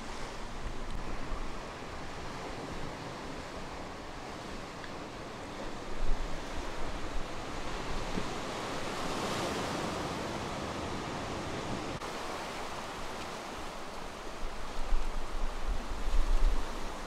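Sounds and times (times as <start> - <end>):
wind buffeting microphone: 14.4 - 17.0.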